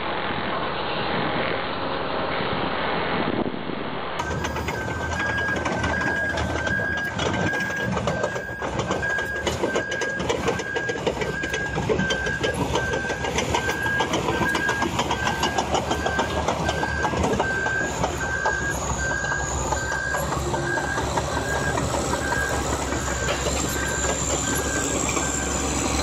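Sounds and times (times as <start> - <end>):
short high tone beeping: 4.2 - 25.6
bulldozer engine running: 4.2 - 26.0
steel tracks clanking: 4.2 - 26.0.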